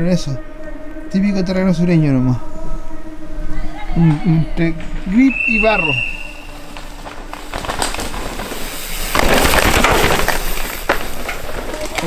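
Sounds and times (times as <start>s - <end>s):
tyres tearing through dirt: 6.0s - 12.0s
bike knocks and rattles: 6.6s - 12.0s.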